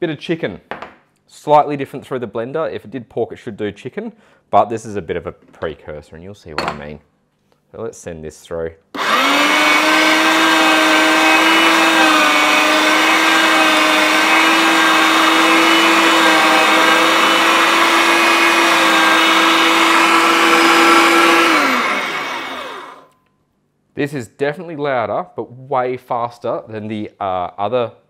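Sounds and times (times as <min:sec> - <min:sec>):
electric meat mincer whining: 0:09.0 - 0:23.1.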